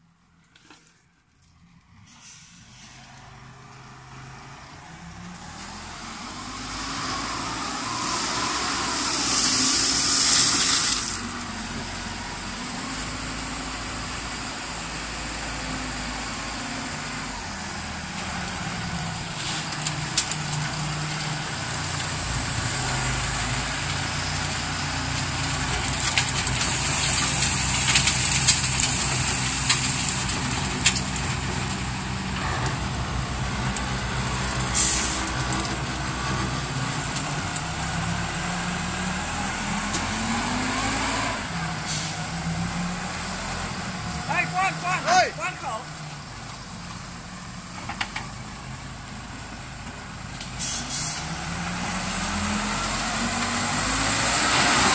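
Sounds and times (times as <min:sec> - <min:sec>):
diesel engine running under load: 0:11.0 - 0:54.9.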